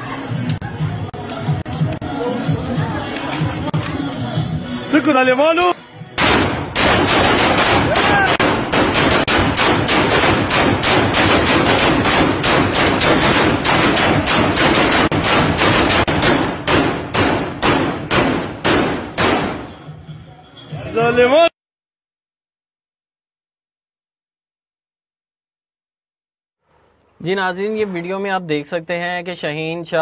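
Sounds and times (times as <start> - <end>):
rapid assault rifle gunfire: 6.2 - 19.6.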